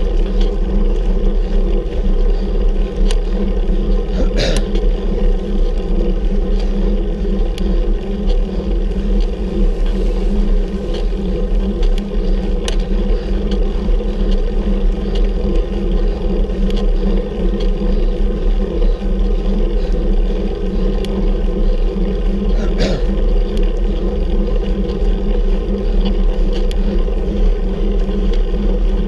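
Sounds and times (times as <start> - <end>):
wind and road rumble: 0.0 - 29.0
faint ticks: 1.9 - 3.3, 6.4 - 19.4, 25.9 - 27.6.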